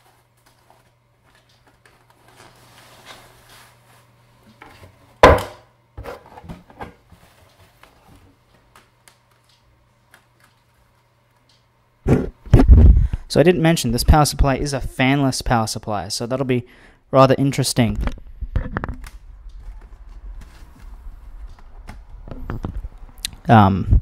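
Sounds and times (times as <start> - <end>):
faint steady hum: 0.0 - 24.0
sharp knock: 5.2 - 5.6
fabric rustling: 19.6 - 22.2.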